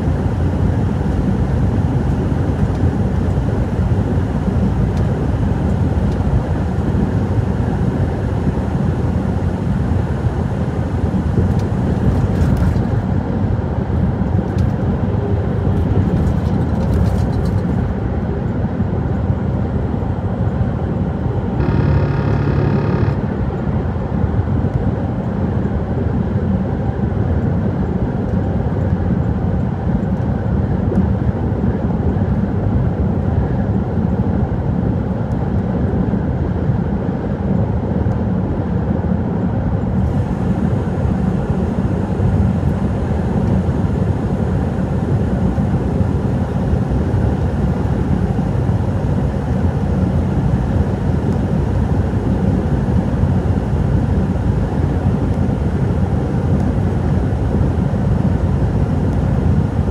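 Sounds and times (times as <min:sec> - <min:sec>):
truck rumbling on road: 0:10.6 - 0:24.6
truck horn: 0:21.6 - 0:23.2.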